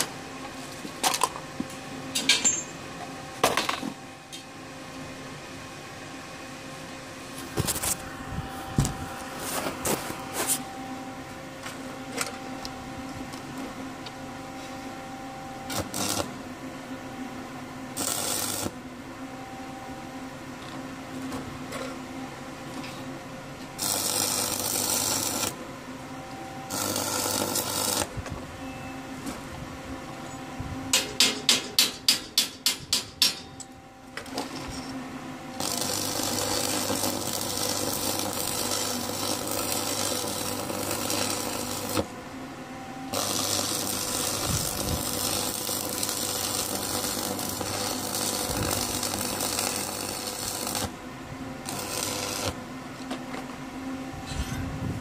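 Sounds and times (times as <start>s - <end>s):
machine hum: 0.0s - 31.2s, 33.4s - 55.0s
arc welding crackling: 7.3s - 10.7s, 15.6s - 16.4s, 17.9s - 18.8s, 23.6s - 25.6s, 26.6s - 28.3s, 35.5s - 42.2s, 43.1s - 51.0s, 51.6s - 52.6s
sharp metal strikes: 54.2s - 54.7s.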